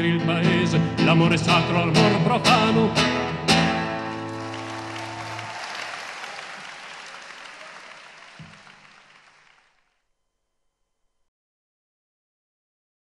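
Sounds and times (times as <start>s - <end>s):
audience applauding: 4.0s - 9.9s.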